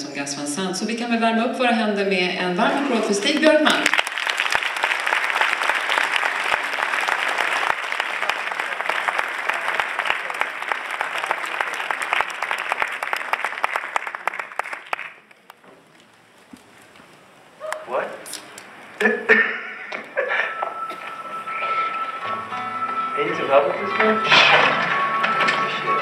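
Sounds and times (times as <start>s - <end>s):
audience applauding: 2.8s - 15.6s.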